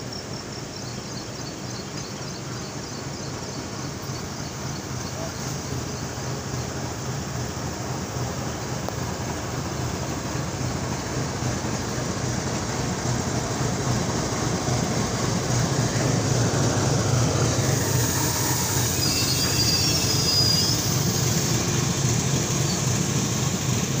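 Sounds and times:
locomotive engine rumble: 0.0s - 24.0s
rolling rail and wheel noise: 0.0s - 24.0s
high wheel squeal: 15.9s - 23.0s.

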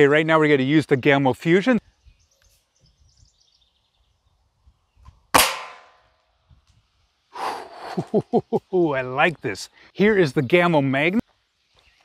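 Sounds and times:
air rifle pellet striking metal: 5.3s - 6.1s.

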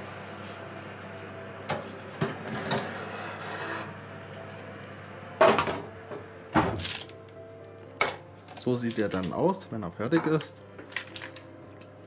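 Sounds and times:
baking tray scraping on rails: 2.3s - 4.0s.

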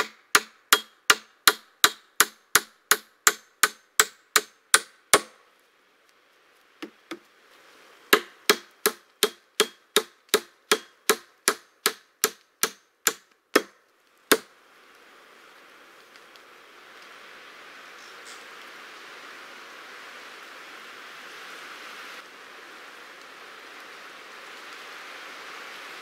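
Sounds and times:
hammer striking wooden beam: 0.0s - 5.4s, 8.1s - 14.5s.

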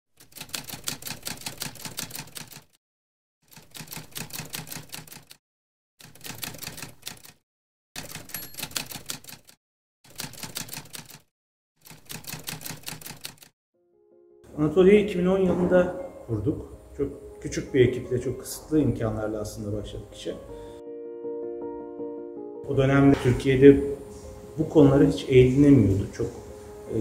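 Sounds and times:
typewriter keys clacking: 0.2s - 2.8s, 3.5s - 5.4s, 6.0s - 7.4s, 8.0s - 13.5s.

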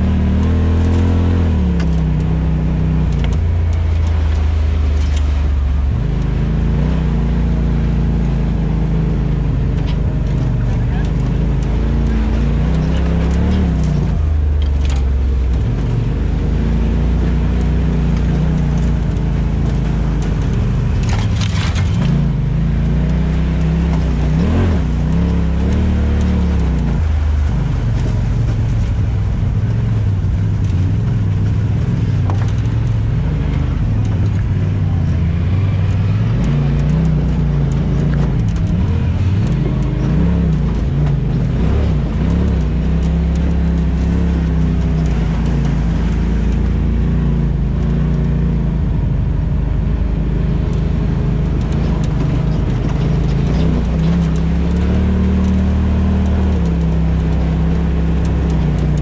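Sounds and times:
off-road engine revving: 0.0s - 59.0s.

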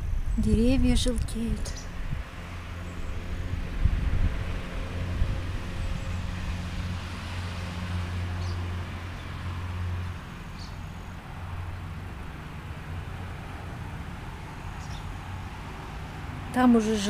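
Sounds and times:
steady low rumble: 0.0s - 7.2s
small bird chirping: 10.5s - 11.2s, 14.5s - 15.2s.

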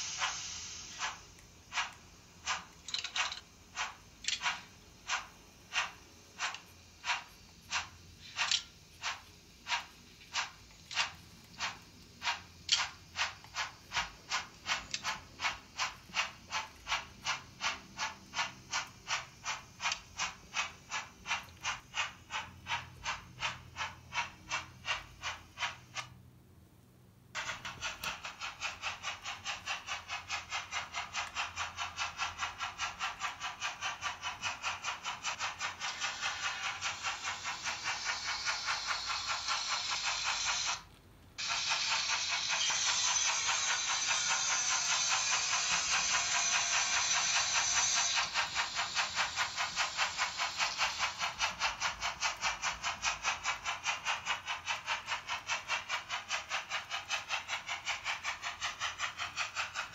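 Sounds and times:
model steam engine chuffing: 0.0s - 26.4s, 27.2s - 59.9s
high steady squeal: 41.4s - 51.8s.

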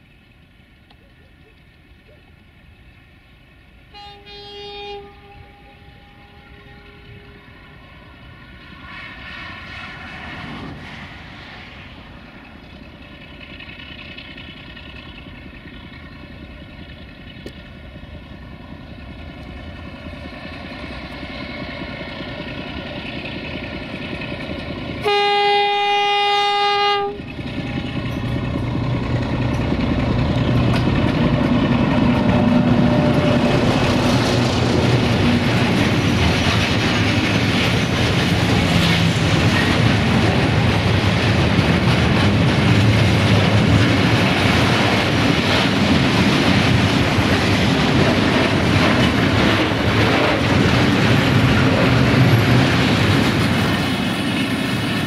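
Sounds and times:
diesel locomotive engine: 0.0s - 55.0s
train horn blast: 3.9s - 7.6s, 25.0s - 27.3s
tank wagons rolling past: 9.7s - 25.0s.

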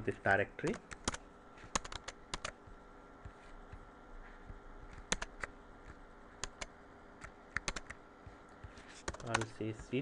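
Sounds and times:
computer keys clicking: 0.7s - 2.6s, 4.8s - 8.0s, 9.0s - 10.0s.

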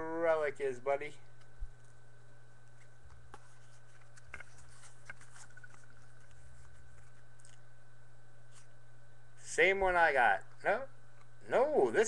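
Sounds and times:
steady low hum: 0.0s - 12.0s
cards ticking and scraping: 1.3s - 7.6s.

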